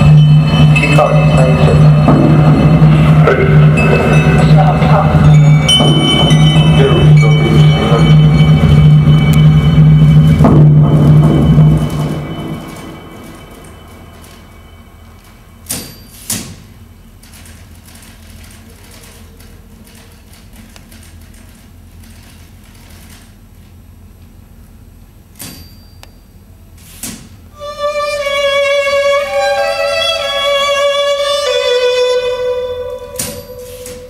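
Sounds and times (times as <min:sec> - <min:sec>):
sharp knocks: 0:00.0 - 0:04.4, 0:05.6 - 0:08.4
bowed string instrument: 0:00.0 - 0:15.7, 0:27.6 - 0:34.0.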